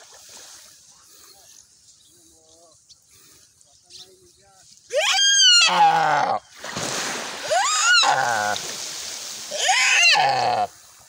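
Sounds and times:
deer bleating in distress: 0:09.5 - 0:10.7.

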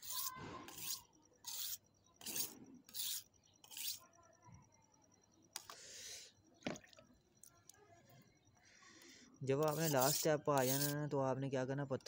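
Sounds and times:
knife scraping on sharpening stone: 0:00.0 - 0:04.0, 0:09.6 - 0:11.0.

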